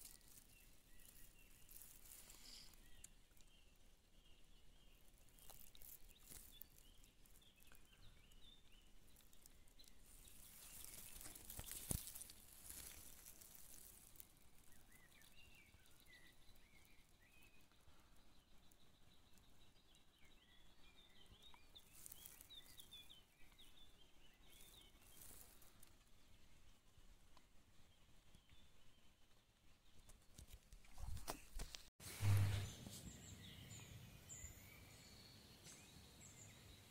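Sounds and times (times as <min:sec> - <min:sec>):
faint bird chirps: 0:00.0 - 0:26.8, 0:32.1 - 0:36.9.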